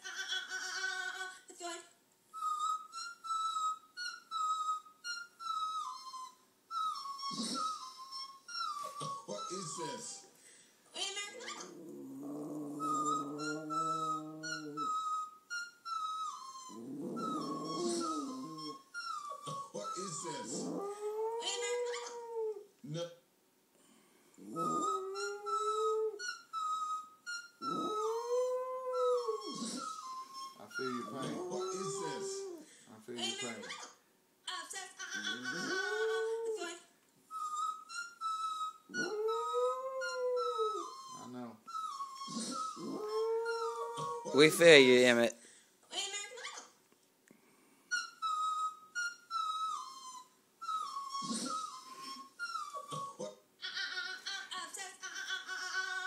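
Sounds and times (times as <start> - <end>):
small dog howling: 11.6 - 15.0, 16.7 - 18.8, 24.4 - 26.2, 27.6 - 29.9, 30.8 - 32.6, 38.9 - 41.2, 42.2 - 44.6.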